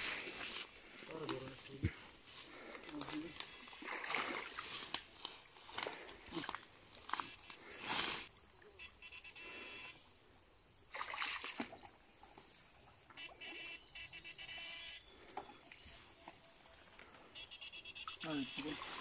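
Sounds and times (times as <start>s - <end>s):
water splashes: 3.0s - 5.0s, 10.9s - 12.0s, 18.1s - 19.0s.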